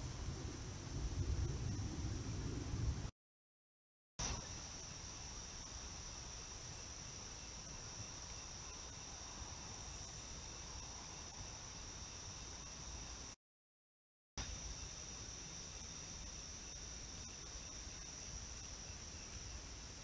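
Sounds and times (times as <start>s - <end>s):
crickets trilling: 4.2s - 13.4s, 14.4s - 20.0s.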